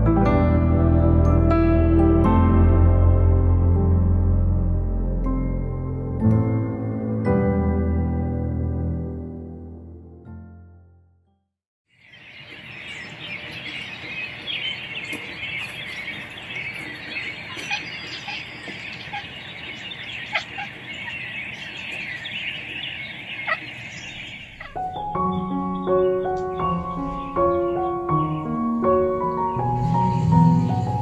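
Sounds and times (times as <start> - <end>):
piano music: 0.0 - 11.4, 24.4 - 31.0
songbirds chirping: 11.9 - 31.0.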